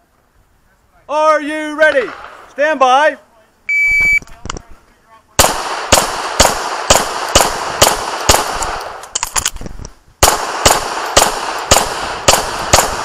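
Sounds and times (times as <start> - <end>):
pistol shots: 5.4 - 9.1, 10.2 - 13.0.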